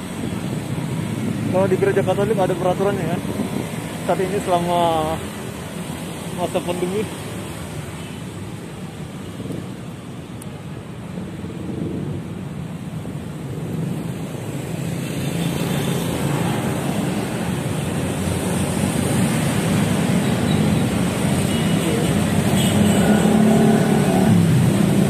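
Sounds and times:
road traffic: 0:00.0 - 0:25.0
motorcycle passing close: 0:23.0 - 0:25.0.

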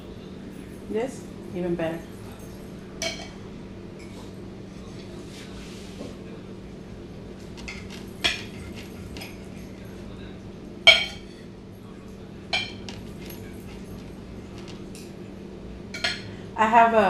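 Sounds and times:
knife and fork scraping plate: 0:07.6 - 0:09.4.

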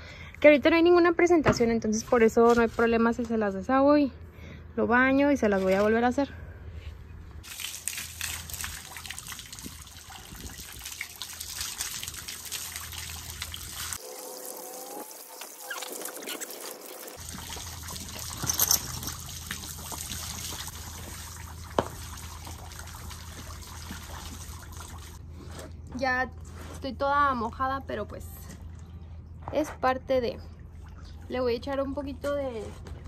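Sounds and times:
hose spraying water: 0:07.4 - 0:25.2.

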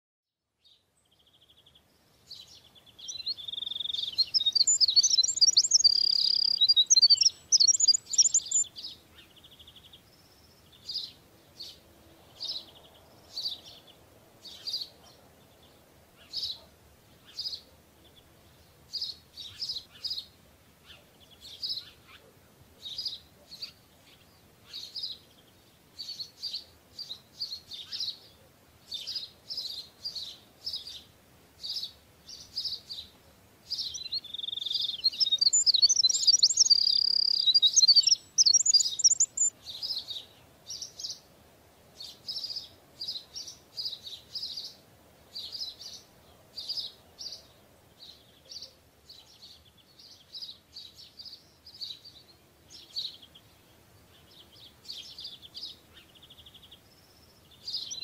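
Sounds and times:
bird chirping and warbling: 0:03.0 - 0:09.3, 0:33.8 - 0:40.1.

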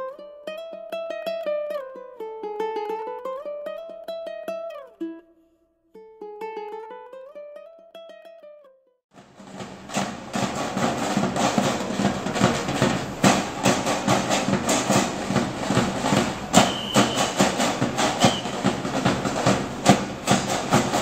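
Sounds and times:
ukulele music: 0:00.0 - 0:08.8, 0:09.5 - 0:21.0
marching band drums beating: 0:09.1 - 0:21.0
brief high tone: 0:16.6 - 0:17.4.

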